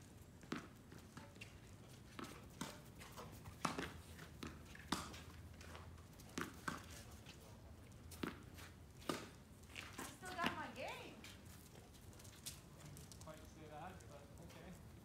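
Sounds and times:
tennis ball pops: 3.6s - 5.2s.

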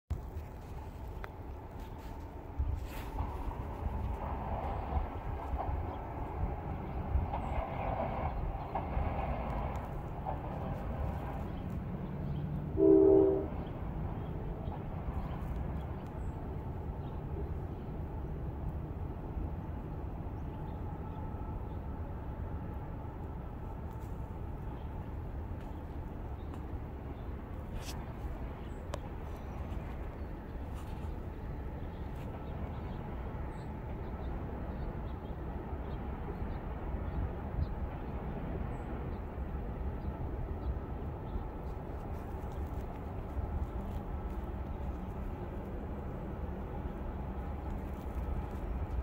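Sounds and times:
low outdoor rumble: 0.1s - 49.0s
locomotive air horn chord: 12.8s - 13.6s.

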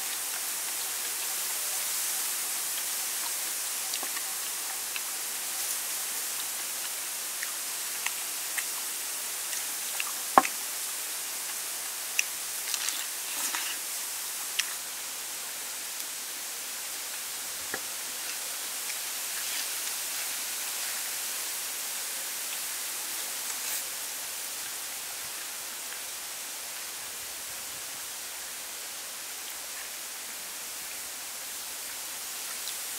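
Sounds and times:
steady high hiss: 0.0s - 32.9s
crunching of fried chicken: 12.2s - 14.8s.

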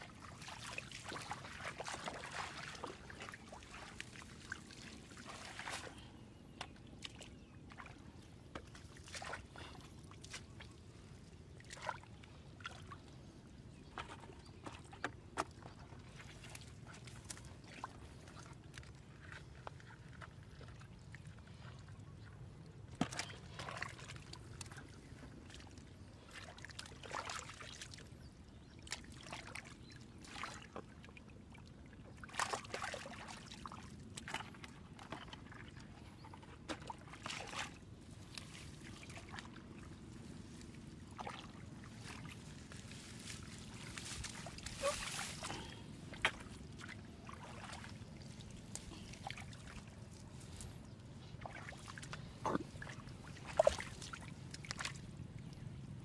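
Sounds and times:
hands squelching in wet mud: 0.0s - 13.2s, 13.9s - 31.1s, 32.2s - 55.8s
small water splashes: 0.0s - 56.0s.

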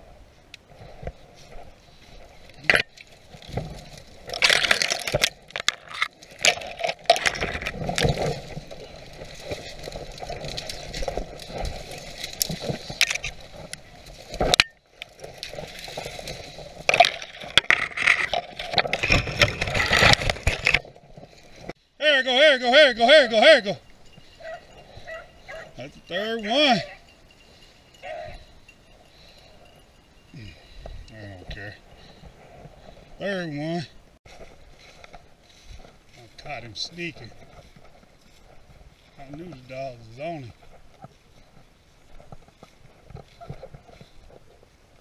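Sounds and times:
branches scraping: 0.0s - 21.8s, 22.7s - 45.0s
dry leaves crunching underfoot: 0.8s - 21.8s, 34.3s - 44.7s
twigs snapping: 2.5s - 21.8s.

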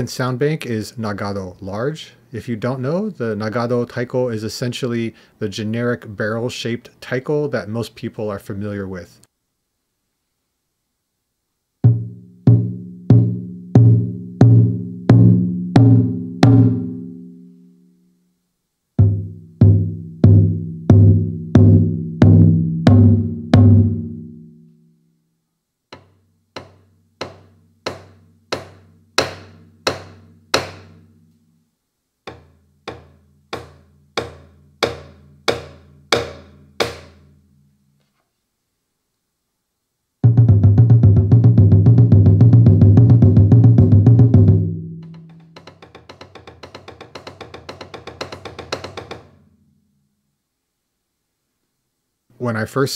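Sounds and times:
deep drum-head hits: 19.0s - 24.1s, 40.3s - 49.3s
sharp drum rim hits: 26.0s - 31.1s, 32.3s - 37.3s.

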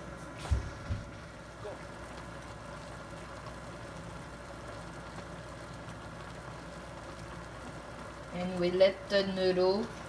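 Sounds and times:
cooktop hum: 0.0s - 10.0s
broth bubbling: 0.5s - 9.1s.

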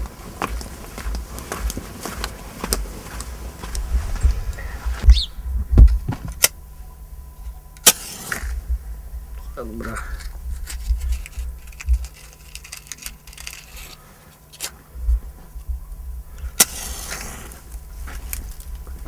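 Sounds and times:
low rumble: 0.0s - 12.1s, 14.9s - 19.0s
twigs rustling: 0.0s - 19.0s
match flaring hiss: 7.8s - 8.7s, 16.4s - 18.8s
matches striking on matchbox: 10.1s - 14.8s, 16.6s - 18.8s.

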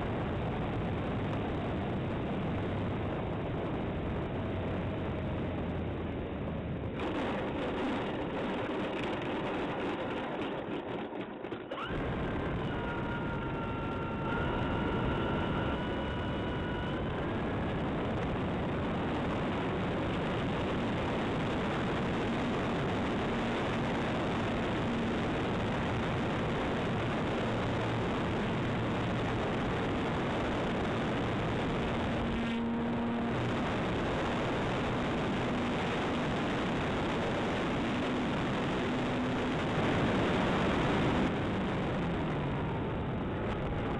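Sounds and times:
low hum: 0.0s - 43.9s
model aeroplane motor and propeller: 0.0s - 43.9s
thin whine: 11.6s - 43.9s.

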